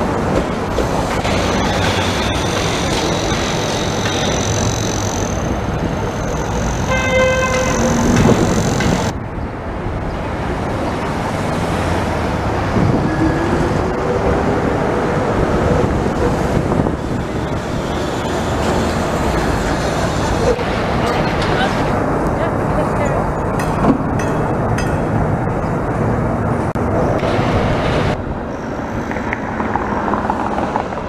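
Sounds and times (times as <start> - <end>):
streetcar whine rising in pitch: 0.0 - 22.4
street traffic: 0.0 - 31.0
streetcar passing: 0.0 - 31.0
car horn honking: 0.7 - 9.1.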